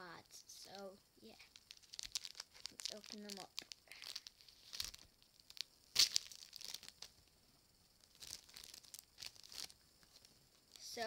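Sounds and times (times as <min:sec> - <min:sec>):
plastic packets tearing: 0:01.4 - 0:07.1, 0:08.1 - 0:10.2.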